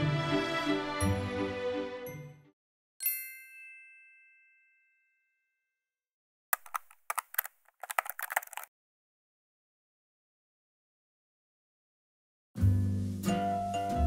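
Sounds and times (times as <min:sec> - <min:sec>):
background music: 0:00.0 - 0:02.5, 0:12.6 - 0:14.0
bright chime: 0:03.0 - 0:05.3
typewriter clicks: 0:06.6 - 0:08.7.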